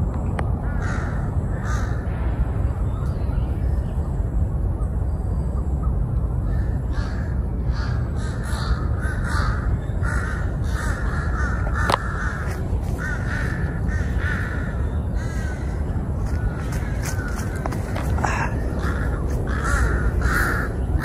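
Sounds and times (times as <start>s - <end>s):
low steady rumble: 0.0s - 21.0s
crows cawing: 0.6s - 2.1s, 6.4s - 21.0s.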